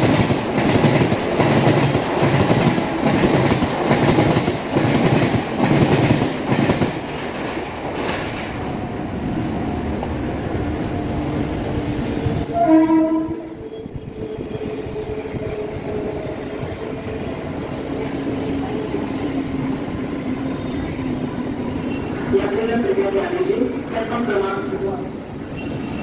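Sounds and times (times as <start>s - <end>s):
train wheels on track: 0.0s - 26.0s
loud train horn: 12.4s - 15.2s.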